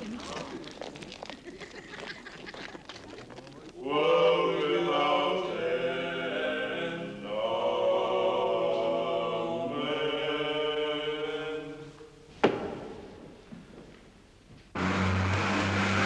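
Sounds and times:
choir singing in harmony: 0:03.8 - 0:12.1.

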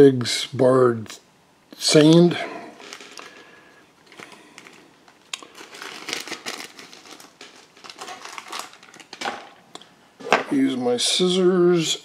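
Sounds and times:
plastic packet crinkling: 0:02.7 - 0:09.6.

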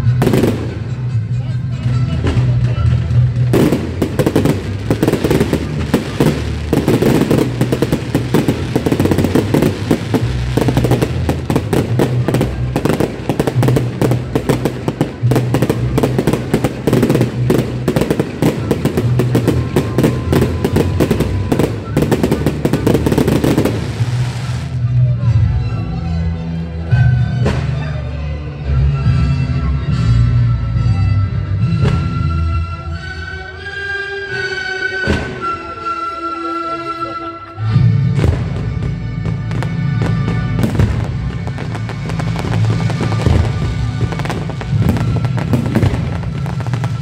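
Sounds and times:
fireworks bangs and crackles: 0:00.0 - 0:25.0, 0:35.0 - 0:35.5, 0:37.8 - 0:47.0.

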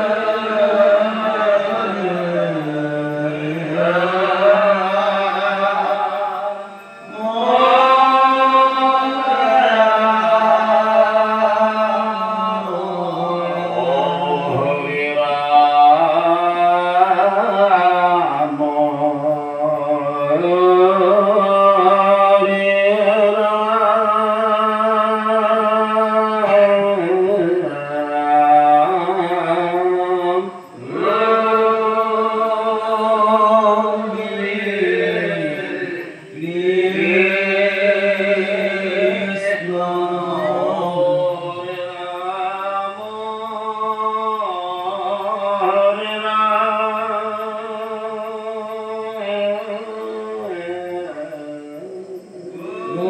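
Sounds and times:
voices chanting: 0:00.0 - 0:53.0.

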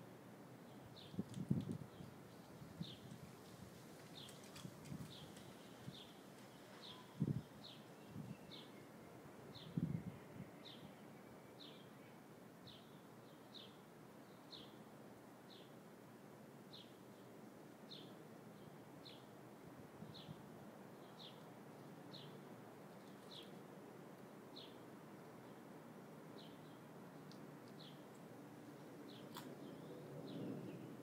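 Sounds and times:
outdoor background hiss: 0:00.0 - 0:31.0
bird chirping: 0:04.1 - 0:14.8, 0:21.0 - 0:23.6, 0:26.4 - 0:28.2, 0:29.0 - 0:31.0.

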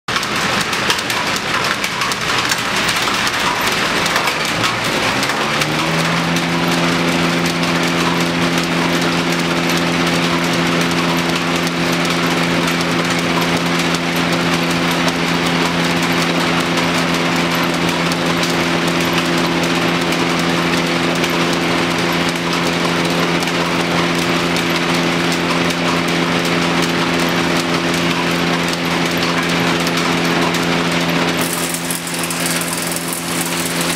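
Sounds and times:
thickness planer running: 0:00.1 - 0:33.9
rushing clatter: 0:31.2 - 0:33.9.

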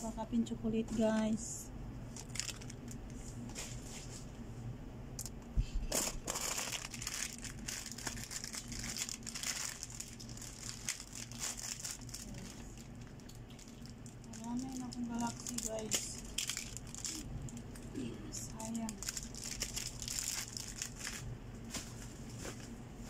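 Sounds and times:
plastic packaging crinkling: 0:02.1 - 0:03.7, 0:05.9 - 0:17.8, 0:18.4 - 0:22.6.

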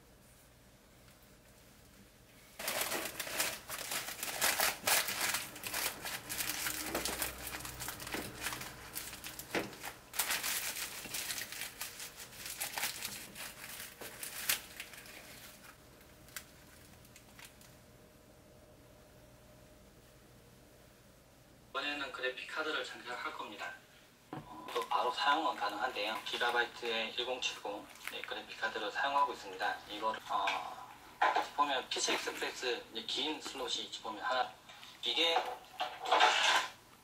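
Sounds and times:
paper crinkling and rustling: 0:02.6 - 0:17.7, 0:24.6 - 0:28.8, 0:31.3 - 0:32.7.

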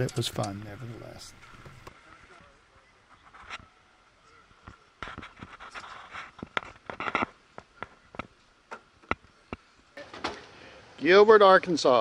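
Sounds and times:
rustling: 0:03.0 - 0:09.4.

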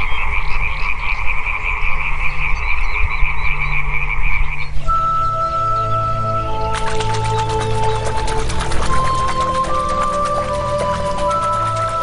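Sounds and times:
frogs croaking: 0:00.0 - 0:12.0
background music with held notes: 0:03.3 - 0:12.0.

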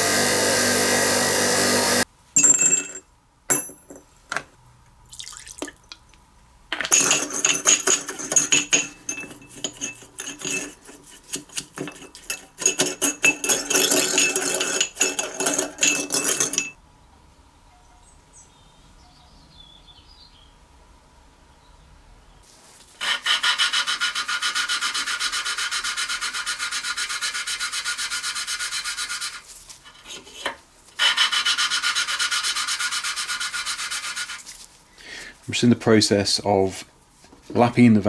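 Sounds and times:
metal tools clinking and rattling: 0:02.4 - 0:04.4, 0:06.8 - 0:10.7, 0:11.8 - 0:16.8.

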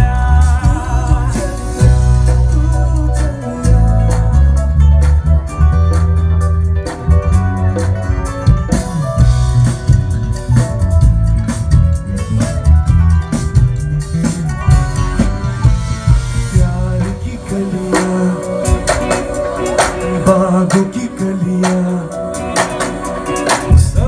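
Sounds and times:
man singing: 0:00.0 - 0:05.4, 0:16.5 - 0:24.0
bass guitar: 0:00.0 - 0:24.0
drum kit beat: 0:00.0 - 0:24.0
electric guitar: 0:00.0 - 0:24.0.

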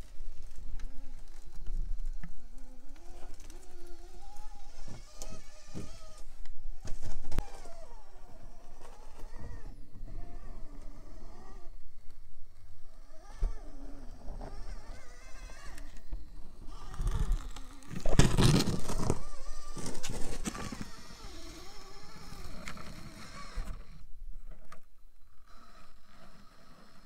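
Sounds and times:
small electric motor whine: 0:00.0 - 0:27.0
tyres scraping and knocking on rock: 0:16.9 - 0:21.1.

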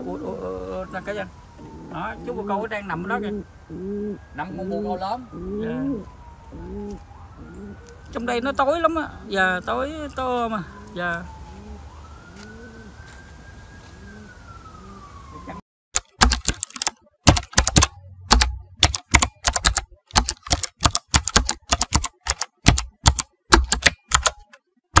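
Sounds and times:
pigeons cooing: 0:00.0 - 0:08.4, 0:10.6 - 0:13.1, 0:13.8 - 0:15.5
distant siren: 0:00.0 - 0:15.6
rapid typing clicks: 0:16.0 - 0:25.0.

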